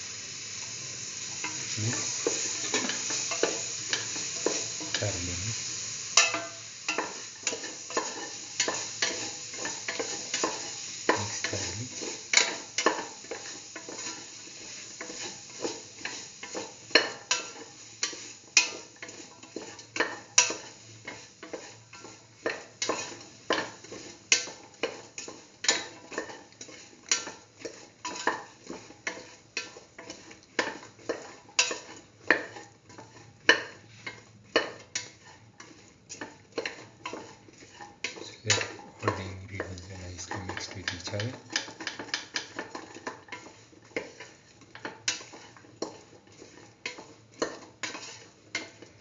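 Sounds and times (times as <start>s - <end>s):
oil sizzling: 0.0s - 49.0s
utensil scraping metal pan: 25.1s - 49.0s.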